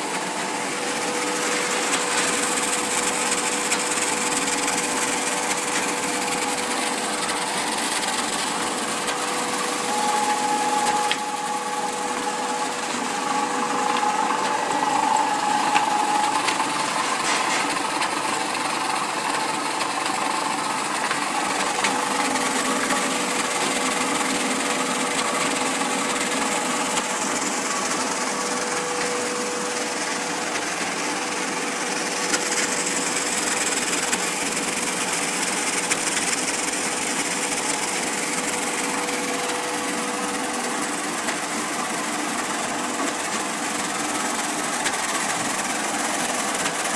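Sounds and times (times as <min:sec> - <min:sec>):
high-pitched whine: 0:00.0 - 0:18.0
laminator whirring: 0:00.0 - 0:46.9.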